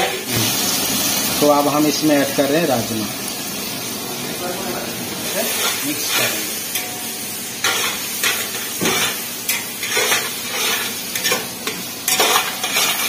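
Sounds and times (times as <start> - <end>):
frying hiss: 0.0 - 13.0
metal ladle scraping a pot: 7.6 - 11.5, 12.1 - 13.0.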